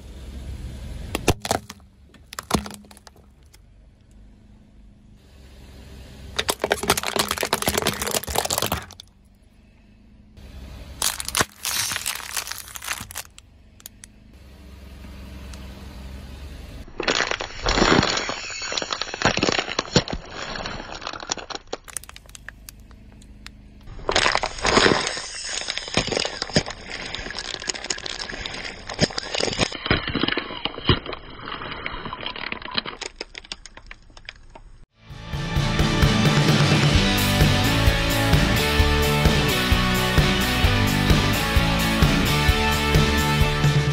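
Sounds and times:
plastic bottles crackling and crushing: 1.2s - 3.6s, 6.4s - 9.2s, 11.0s - 13.4s, 16.9s - 22.9s, 23.9s - 34.8s.

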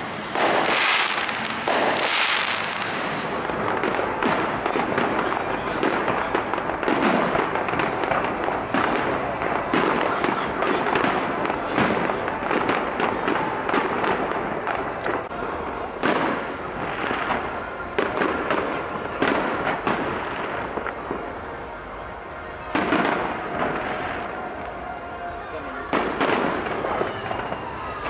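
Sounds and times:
fireworks bursting with sharp bangs: 0.0s - 28.0s
fireworks crackling: 0.0s - 28.0s.

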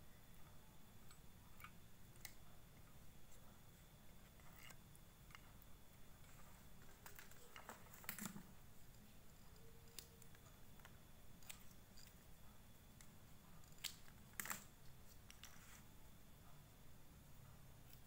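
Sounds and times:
small clicks of handling wiring: 1.1s - 2.9s, 4.3s - 5.6s, 6.3s - 12.2s, 13.0s - 15.7s.

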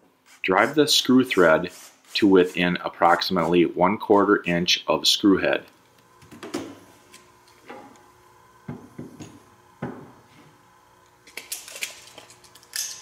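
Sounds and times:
hard objects knocking on tabletop: 8.7s - 10.2s.

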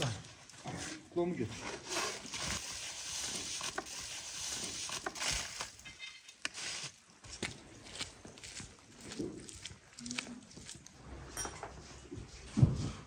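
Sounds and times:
aluminium foil crinkling: 1.9s - 6.0s.

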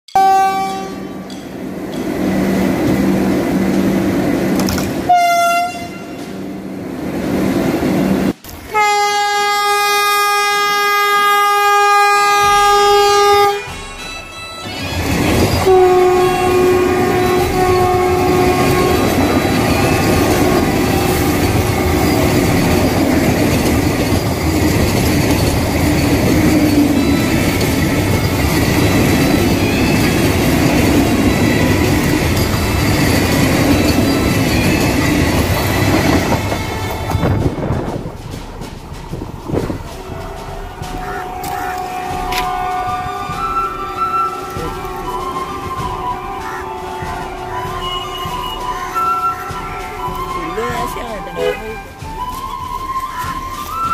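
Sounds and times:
train horn: 0.1s - 1.3s, 5.1s - 6.4s, 8.7s - 23.0s, 39.9s - 53.9s
train wheels rushing and clattering: 1.2s - 8.8s, 10.6s - 53.9s.

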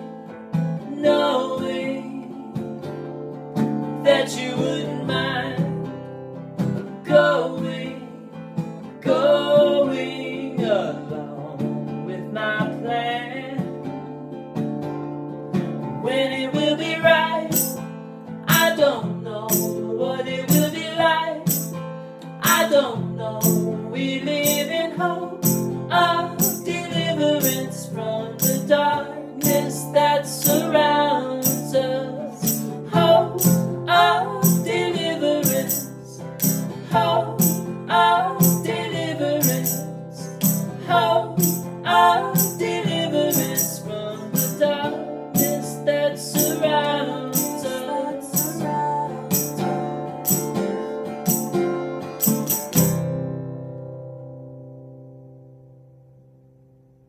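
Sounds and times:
acoustic guitar strumming: 0.0s - 57.0s
man and woman singing together: 0.8s - 2.8s, 4.0s - 6.0s, 6.9s - 14.0s, 16.0s - 17.8s, 18.5s - 21.7s, 22.3s - 49.7s
hand percussion tapping a beat: 17.5s - 17.8s, 18.5s - 18.8s, 19.5s - 19.9s, 21.5s - 22.7s, 23.4s - 23.8s, 24.4s - 24.8s, 25.4s - 25.8s, 26.4s - 27.7s, 28.4s - 28.8s, 29.4s - 29.8s, 31.4s - 31.8s, 32.4s - 32.8s, 33.4s - 33.8s, 34.4s - 36.8s, 37.4s - 44.7s, 46.4s - 47.8s, 48.4s - 53.0s.

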